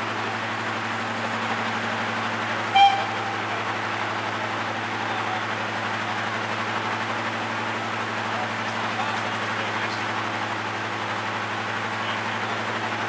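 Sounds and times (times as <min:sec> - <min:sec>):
diesel locomotive idling hum: 0:00.0 - 0:13.0
steam train running past: 0:00.0 - 0:13.0
locomotive whistle toot: 0:02.7 - 0:03.7.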